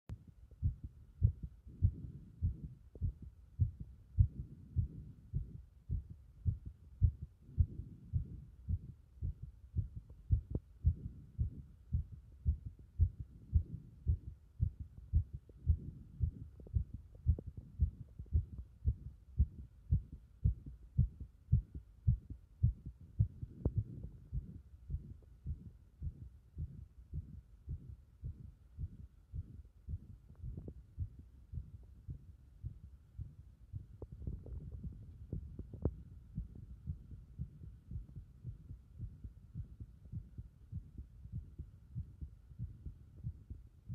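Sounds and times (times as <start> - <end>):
faint steady hum: 0.1 - 43.9
heartbeat thuds: 0.1 - 43.9.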